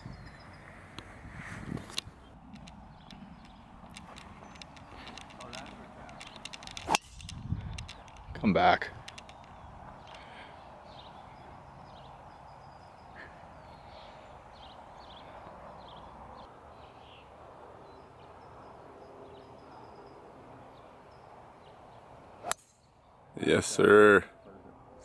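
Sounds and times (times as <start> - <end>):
birds chirping: 0.0 - 25.0
golf club striking ball: 6.2 - 8.0.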